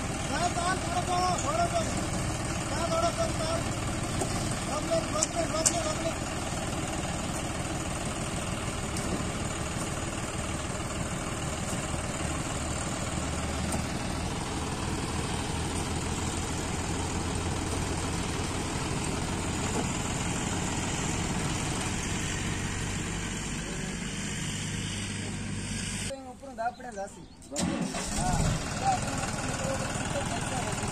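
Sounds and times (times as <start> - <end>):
diesel tractor engine idling: 0.0 - 30.9.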